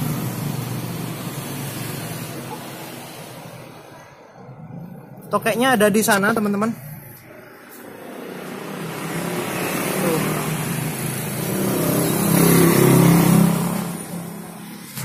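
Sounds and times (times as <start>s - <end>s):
vehicle passing by: 0.0s - 15.0s.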